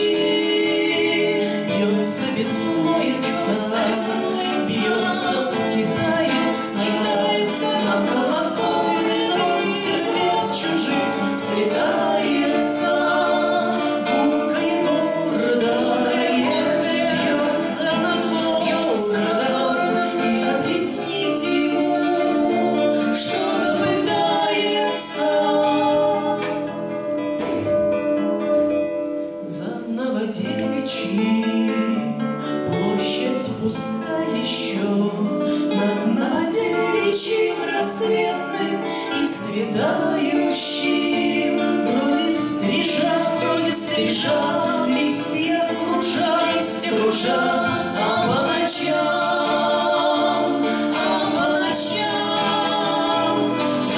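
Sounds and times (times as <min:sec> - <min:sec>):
two women singing: 0:00.0 - 0:27.7, 0:29.4 - 0:53.9
strummed acoustic guitars: 0:00.0 - 0:53.9.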